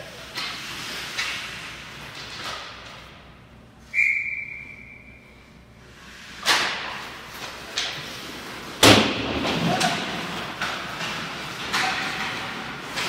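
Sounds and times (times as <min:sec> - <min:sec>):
referee's whistle blast: 0:03.9 - 0:05.2
loud sharp bang echoing: 0:08.8 - 0:09.6.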